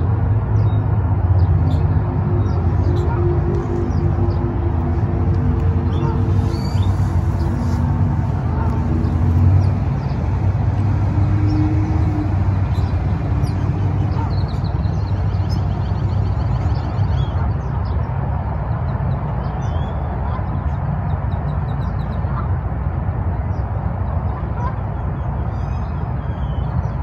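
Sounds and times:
distant road traffic rumble: 0.0 - 27.0
small birds chirping: 5.6 - 22.4.

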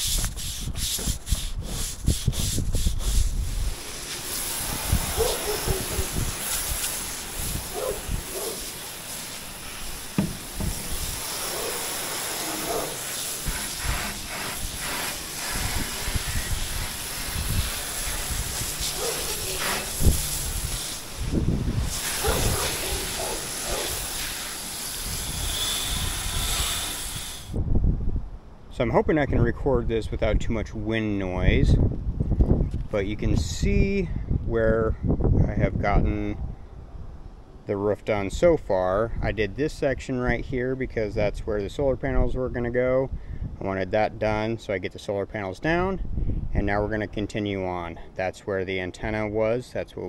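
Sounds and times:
wind rumbling on microphone: 0.0 - 24.4, 25.0 - 37.5, 38.1 - 44.6, 45.8 - 47.2
hose nozzle spraying water: 0.0 - 27.6.

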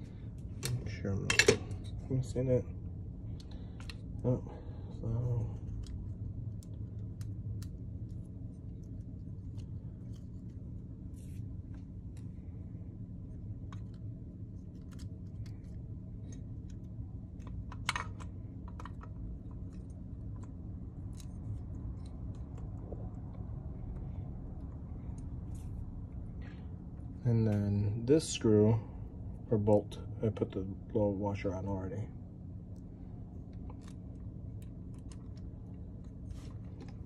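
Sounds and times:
steady low hum: 0.0 - 37.0.

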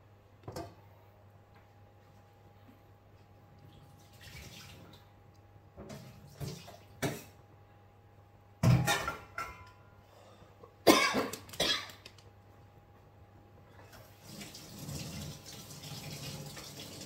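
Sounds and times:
man coughing: 10.9 - 11.9
tap water running into sink: 14.0 - 17.0.

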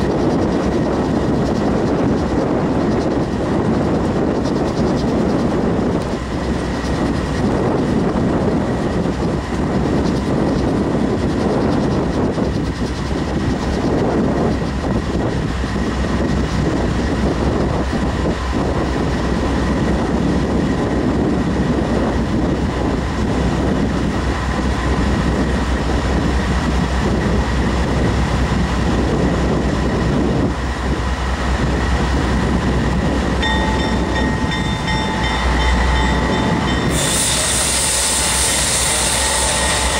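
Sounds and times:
diesel locomotive rumble: 0.0 - 39.9
high ringing tone: 33.4 - 39.9.

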